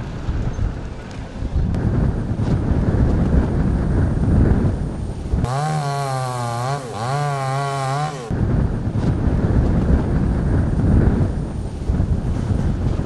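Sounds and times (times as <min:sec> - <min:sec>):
wind buffeting microphone: 0:00.0 - 0:06.2, 0:08.2 - 0:13.0
chainsaw running at high revs: 0:05.4 - 0:08.4.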